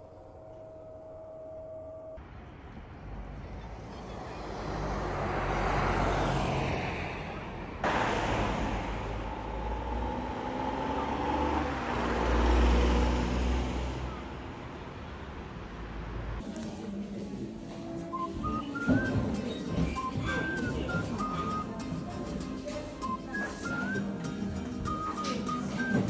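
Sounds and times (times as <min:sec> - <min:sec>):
low engine rumble: 0:00.0 - 0:16.4
cars passing: 0:02.2 - 0:16.5, 0:19.8 - 0:21.8.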